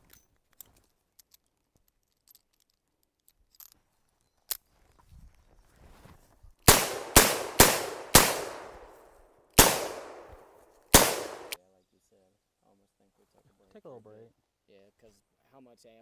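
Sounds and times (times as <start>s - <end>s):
gunshots with echoing decay: 6.7s - 11.6s.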